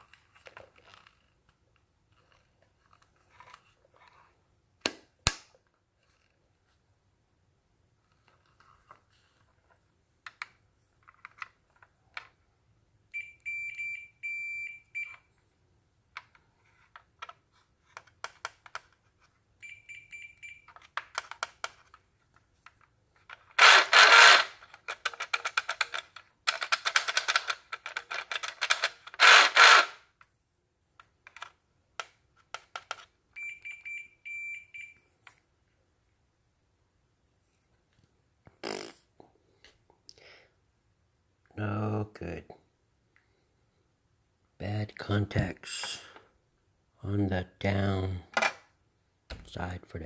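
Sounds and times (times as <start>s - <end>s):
multimeter high beep: 13.2s - 15.1s, 19.6s - 20.6s.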